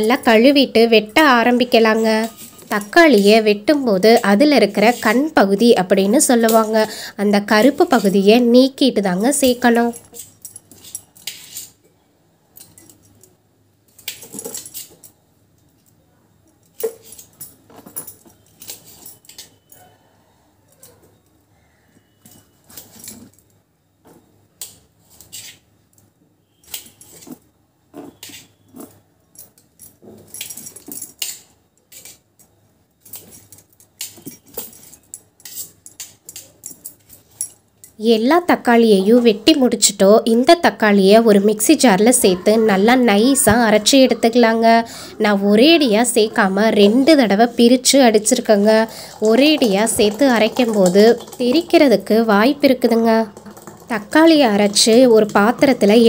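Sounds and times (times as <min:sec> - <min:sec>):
bangles jingling: 0:00.0 - 0:08.5, 0:09.1 - 0:11.8, 0:16.4 - 0:19.9, 0:28.1 - 0:39.4, 0:45.5 - 0:56.0.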